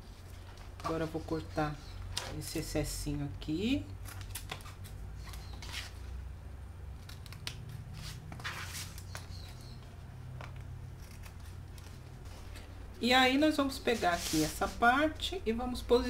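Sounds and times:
low steady hum: 0.0 - 16.0
scissors snipping: 10.5 - 12.0.

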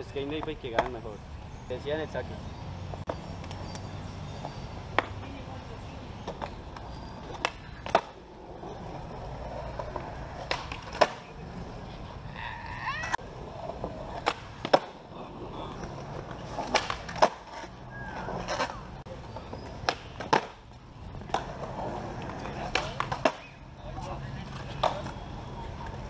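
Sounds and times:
skateboard wheels rolling on concrete: 0.0 - 26.0
skateboard tail popping and landing: 9.8 - 11.3, 13.8 - 15.0, 16.4 - 18.8, 19.8 - 20.6, 21.2 - 23.6.

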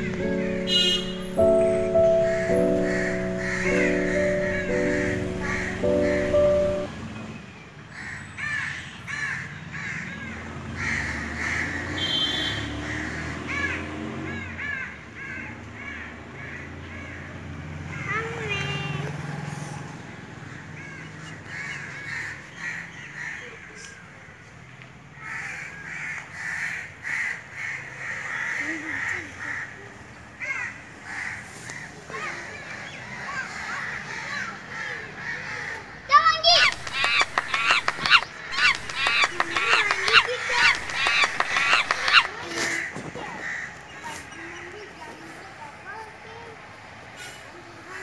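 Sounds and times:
crows cawing: 1.8 - 6.5, 7.9 - 18.2, 20.5 - 23.8, 25.2 - 44.1.

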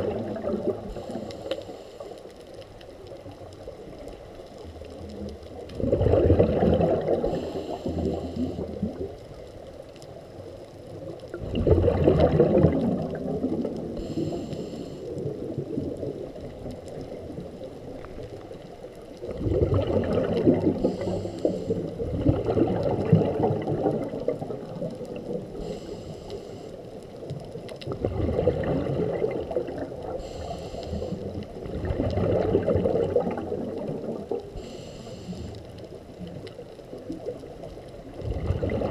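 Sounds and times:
exhaled bubbles underwater: 0.0 - 2.1, 2.7 - 38.9
regulator hiss: 14.0 - 15.2, 20.8 - 21.9, 25.5 - 27.0, 30.2 - 31.3, 34.5 - 35.7.

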